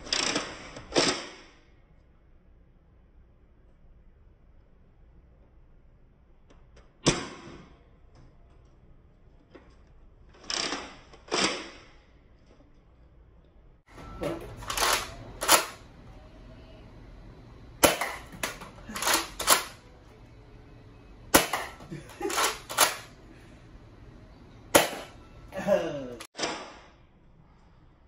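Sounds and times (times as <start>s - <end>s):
blaster clacks: 14.6s - 15.8s, 17.8s - 19.8s, 21.3s - 23.1s.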